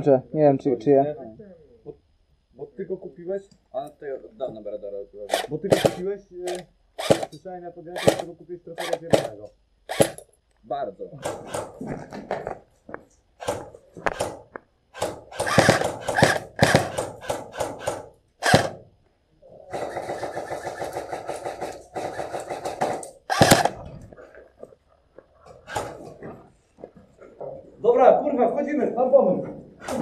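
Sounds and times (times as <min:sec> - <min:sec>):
full-auto bursts: 0:05.2 - 0:10.2, 0:11.2 - 0:11.8, 0:13.4 - 0:18.9, 0:19.7 - 0:23.8, 0:25.6 - 0:26.1
airsoft guns firing: 0:05.3 - 0:07.4, 0:08.0 - 0:10.2, 0:11.2 - 0:11.8, 0:13.4 - 0:18.8, 0:19.7 - 0:23.8, 0:25.6 - 0:26.1.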